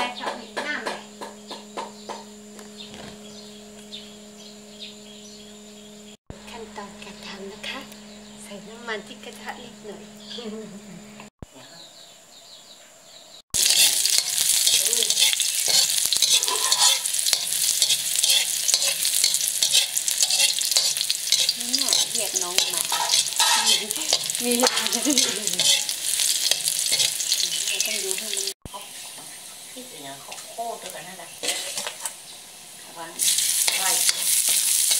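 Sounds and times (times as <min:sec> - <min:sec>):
garlic sizzling in hot oil: 0:13.5 - 0:34.9
metal spatula stirring in wok: 0:13.6 - 0:29.2, 0:30.3 - 0:32.2, 0:33.2 - 0:34.9.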